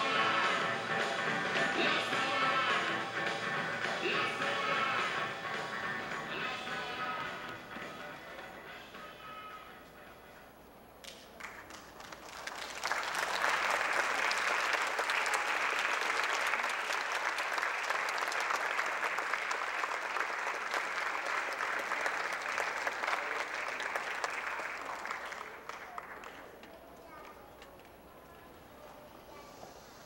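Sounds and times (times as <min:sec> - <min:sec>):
audience applauding: 0:11.1 - 0:26.7.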